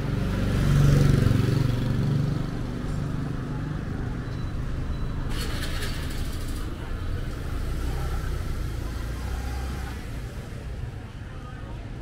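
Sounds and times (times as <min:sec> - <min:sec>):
street traffic noise: 0:00.0 - 0:12.0.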